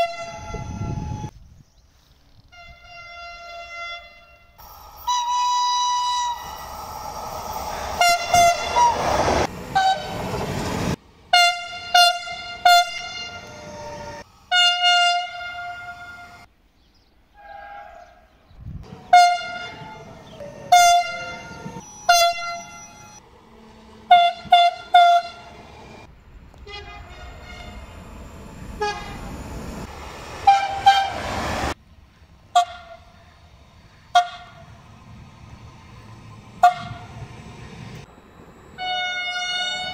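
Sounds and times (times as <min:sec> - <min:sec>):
train horns tooting: 0:00.0 - 0:01.3, 0:02.5 - 0:10.5, 0:11.3 - 0:16.5, 0:17.4 - 0:23.2, 0:24.0 - 0:26.0, 0:26.6 - 0:28.0, 0:28.7 - 0:29.8, 0:30.4 - 0:31.8, 0:32.5 - 0:33.2, 0:34.1 - 0:34.8, 0:36.6 - 0:37.3, 0:38.7 - 0:39.9
train wheels rumbling on rails: 0:04.6 - 0:16.5, 0:18.8 - 0:39.9.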